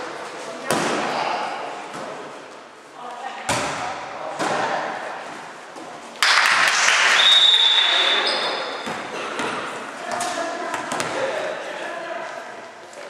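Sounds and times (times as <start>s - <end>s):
spectators cheering and clapping: 6.2s - 8.1s
long high whistle: 7.1s - 8.4s.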